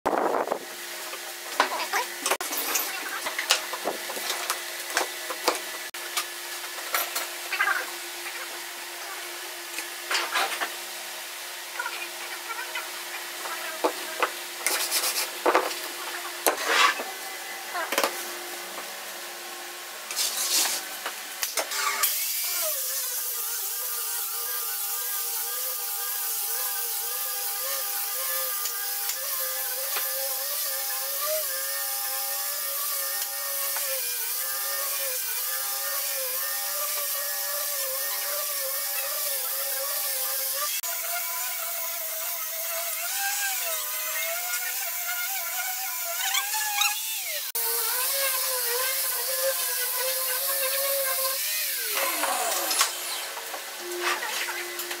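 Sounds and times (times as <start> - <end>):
angle grinder sanding wood: 11.6 - 55.0.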